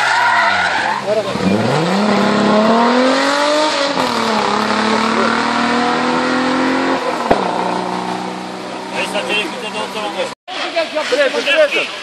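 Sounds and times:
race car engine revving: 1.0s - 10.3s
engine sharp crack: 1.4s - 9.4s.

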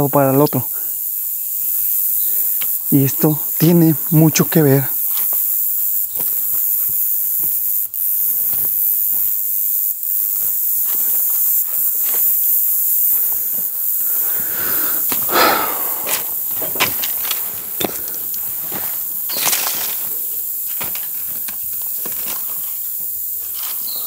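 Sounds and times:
insects droning: 0.0s - 24.0s
footsteps on rocky ground: 6.1s - 9.4s, 10.2s - 12.3s, 13.1s - 24.0s
brush rustling: 13.0s - 24.0s.

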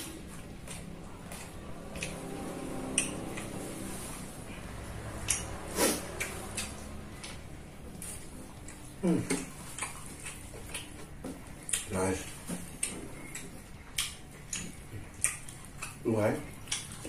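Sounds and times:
chewing rice: 0.0s - 17.0s
wet mouth clicks and smacks: 5.2s - 5.6s, 6.2s - 7.4s.

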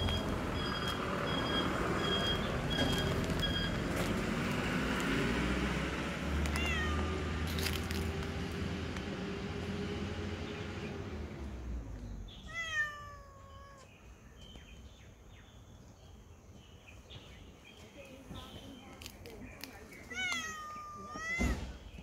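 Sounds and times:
cat meowing: 6.4s - 7.4s, 12.5s - 13.9s, 20.1s - 21.6s.

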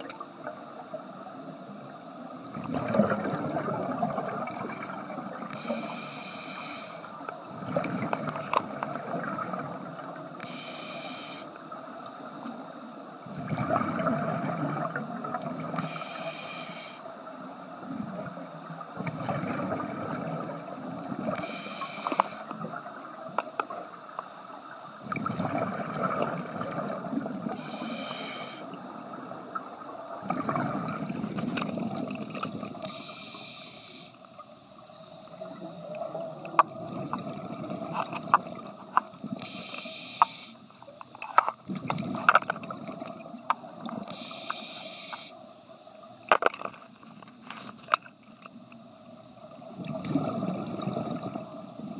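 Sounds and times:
exhaled bubbles rumbling: 2.4s - 5.6s, 7.4s - 10.3s, 13.3s - 15.8s, 17.8s - 21.4s, 25.0s - 27.6s, 28.8s - 32.9s, 35.4s - 39.4s, 41.6s - 44.1s, 49.5s - 51.9s
regulator inhale hiss: 5.5s - 7.4s, 10.4s - 13.2s, 15.8s - 17.3s, 21.4s - 22.6s, 24.0s - 25.1s, 27.5s - 28.8s, 32.8s - 35.9s, 39.4s - 40.8s, 44.1s - 45.6s.

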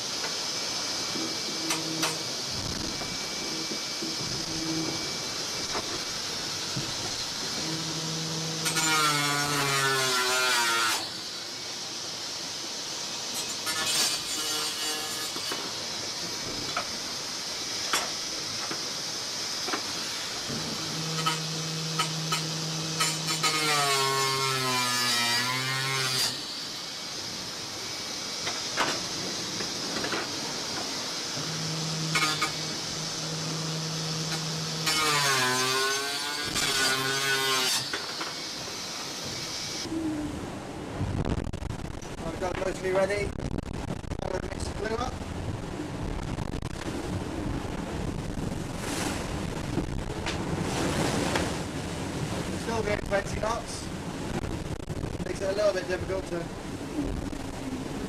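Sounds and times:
yacht rushing water: 44.2s - 58.0s.

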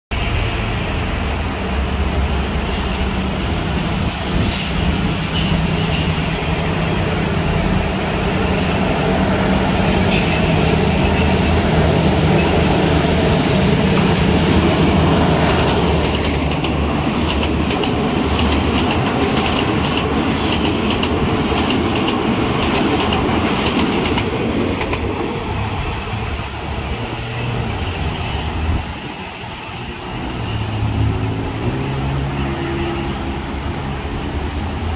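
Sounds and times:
diesel locomotive droning: 0.1s - 34.9s
train wheels clattering on rails: 9.7s - 28.2s.

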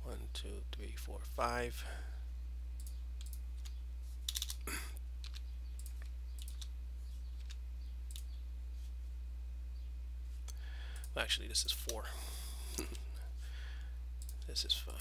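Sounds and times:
low electrical hum: 0.0s - 15.0s
keyboard typing: 2.8s - 8.4s.

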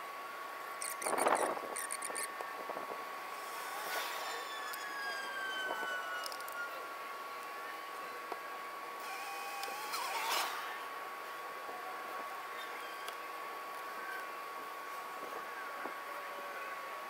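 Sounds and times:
faint high whine: 0.0s - 17.0s.

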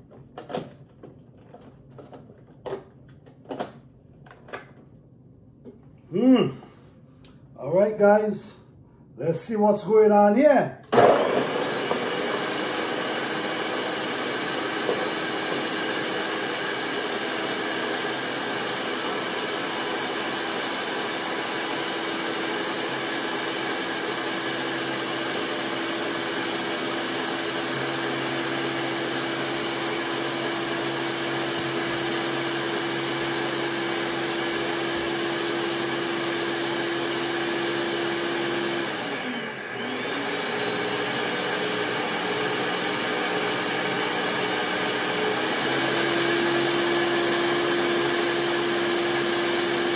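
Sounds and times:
blender motor running: 10.9s - 49.9s.

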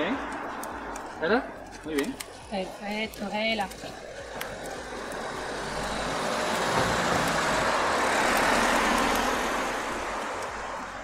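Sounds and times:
vehicle driving past: 0.0s - 1.9s, 3.8s - 11.0s.

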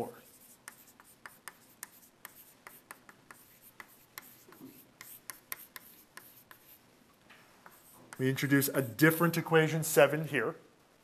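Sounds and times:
chalk tapping and scraping on blackboard: 0.1s - 6.8s, 7.6s - 9.1s.

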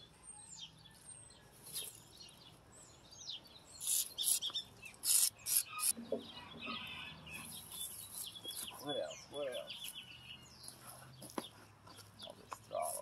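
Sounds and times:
aerosol can spraying: 3.8s - 4.4s, 5.0s - 5.9s.

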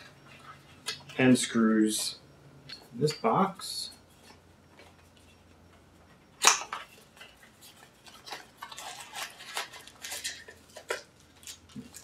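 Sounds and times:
cardboard rustling and scraping: 6.8s - 12.0s.

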